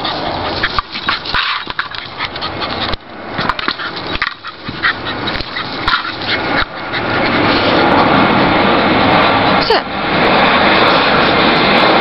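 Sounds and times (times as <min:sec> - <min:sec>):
ball knocking and scraping: 0:00.0 - 0:07.7
dog sounds: 0:00.0 - 0:08.3
steady rushing noise: 0:00.0 - 0:12.0.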